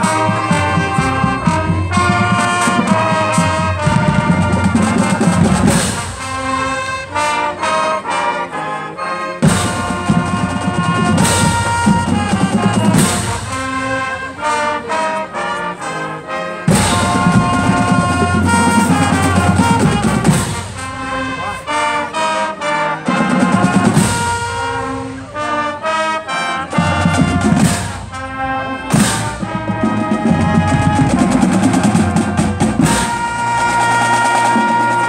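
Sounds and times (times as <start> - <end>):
bass drums: 0.0 - 6.6, 9.4 - 14.1, 16.7 - 21.5, 26.8 - 35.0
marching band playing: 0.0 - 35.0.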